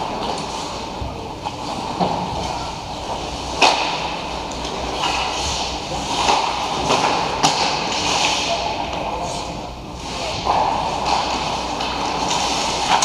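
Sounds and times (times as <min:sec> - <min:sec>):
stick hitting puck: 0:03.6 - 0:04.2, 0:06.1 - 0:08.5.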